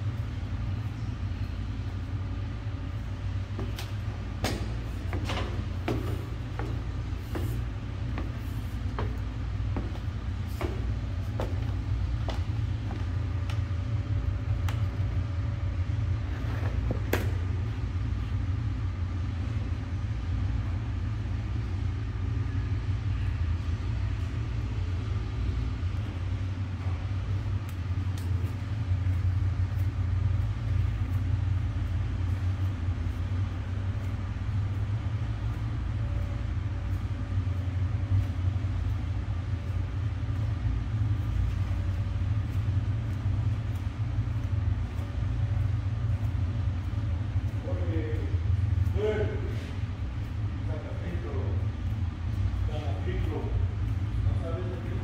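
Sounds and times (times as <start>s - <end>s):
steady low rumble: 0.0s - 55.0s.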